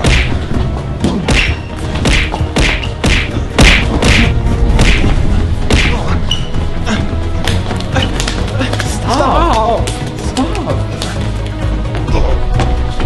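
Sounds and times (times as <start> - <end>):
punch hits: 0.0 - 6.1
background music with low bass: 0.0 - 13.0.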